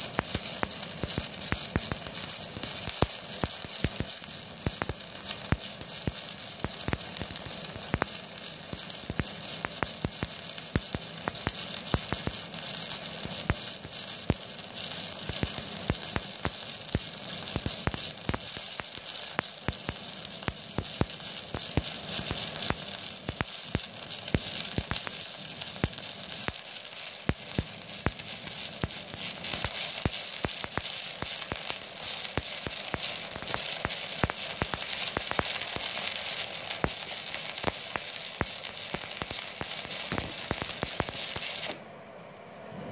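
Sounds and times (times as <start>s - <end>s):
welding arc crackling and popping: 0.0s - 41.8s.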